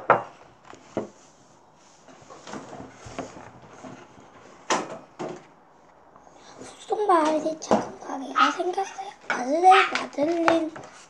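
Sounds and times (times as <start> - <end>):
book pages turning: 2.0 - 6.0.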